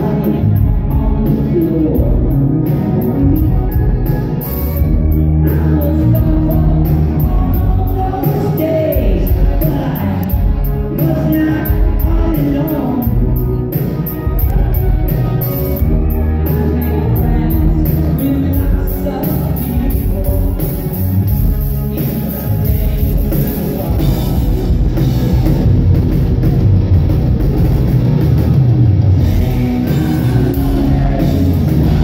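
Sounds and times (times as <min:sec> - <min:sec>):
man singing lead vocals: 0:00.0 - 0:04.4, 0:05.0 - 0:13.6, 0:16.1 - 0:25.1, 0:29.1 - 0:32.0
live rock band playing: 0:00.0 - 0:32.0.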